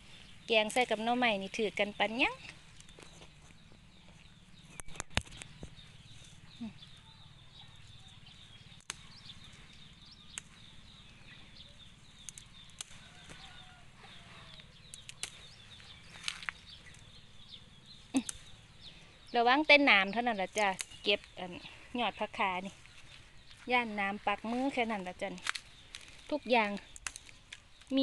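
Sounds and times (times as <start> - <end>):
faint bird chirps: 2.0 - 28.0
leafy shoots rustling: 7.7 - 28.0
sharp clicks of picking: 10.3 - 10.6, 12.2 - 13.0, 18.2 - 18.5.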